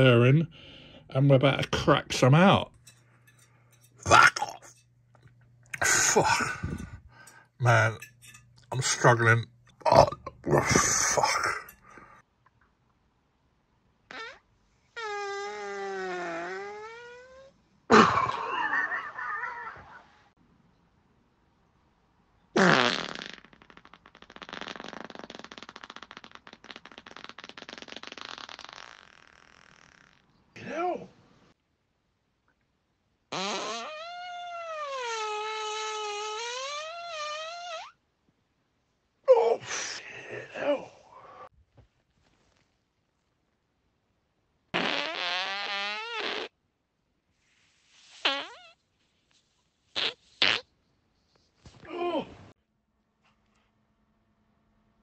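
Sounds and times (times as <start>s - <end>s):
person farting: 4.0s - 4.7s, 5.7s - 12.1s, 14.1s - 20.0s, 22.6s - 30.3s, 33.3s - 38.0s, 44.7s - 46.6s, 48.2s - 48.8s, 49.9s - 50.7s.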